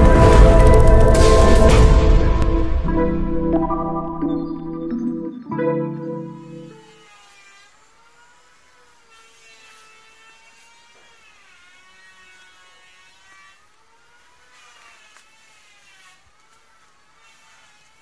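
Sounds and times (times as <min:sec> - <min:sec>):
piano tune: 0:00.0 - 0:06.9.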